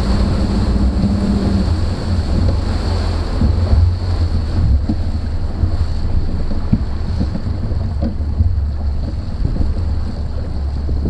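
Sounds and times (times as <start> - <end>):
boat running on choppy water: 0.0 - 11.0
water slapping hull: 0.0 - 11.0
wind buffeting microphone: 0.0 - 11.0.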